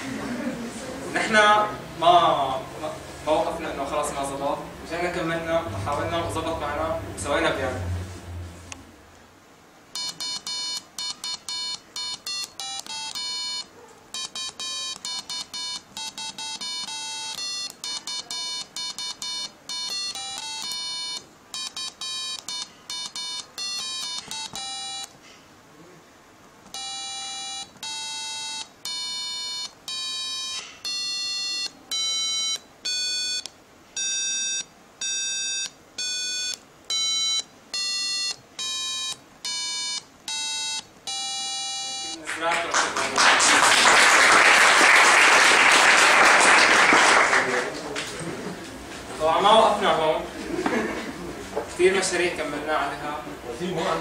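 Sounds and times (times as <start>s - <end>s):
electronic buzzer beeping a tune: 9.9s - 25.2s, 26.7s - 42.2s.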